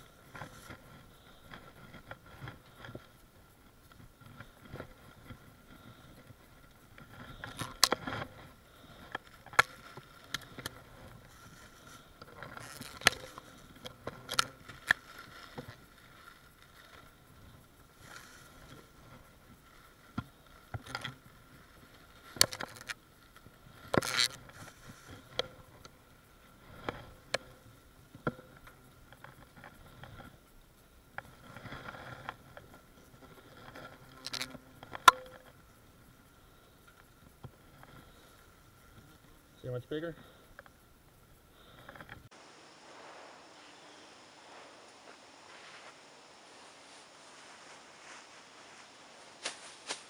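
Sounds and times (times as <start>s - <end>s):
low rustle: 41.0s - 50.0s.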